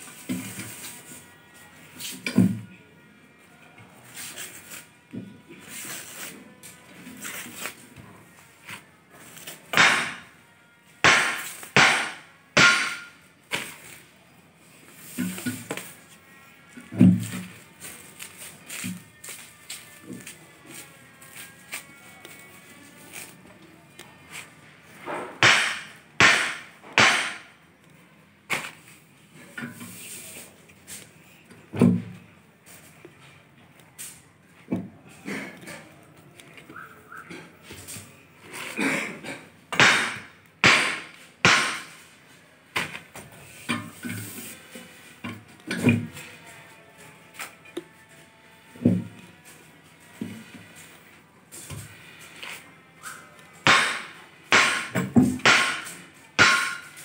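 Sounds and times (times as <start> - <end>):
iron bar striking hard ground: 11.1 - 13.2, 39.7 - 42.0, 53.7 - 57.0.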